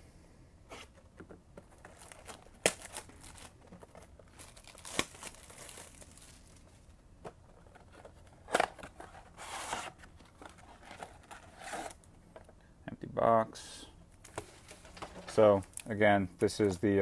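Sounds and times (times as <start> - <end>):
plastic shrink wrap tearing: 4.3 - 6.6.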